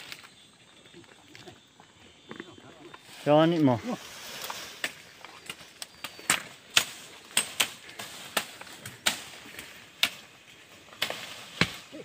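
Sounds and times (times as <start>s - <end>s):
machete chopping bamboo and brush: 4.4s - 12.0s.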